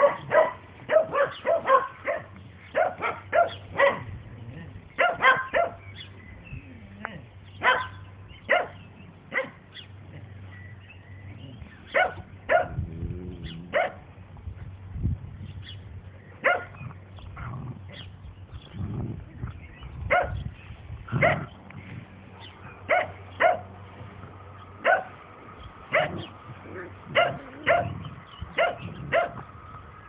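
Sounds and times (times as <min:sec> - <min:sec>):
dogs barking: 0:00.0 - 0:06.1, 0:07.0 - 0:10.5, 0:11.5 - 0:14.2, 0:16.4 - 0:18.1, 0:20.0 - 0:20.5, 0:21.1 - 0:21.6, 0:22.3 - 0:25.2, 0:25.8 - 0:29.6.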